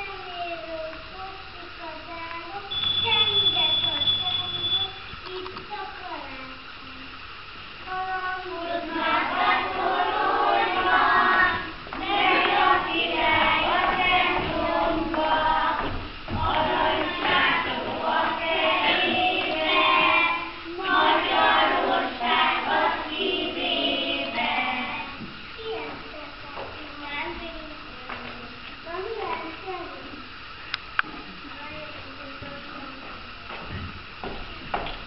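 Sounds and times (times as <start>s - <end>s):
children singing: 8.5s - 25.3s.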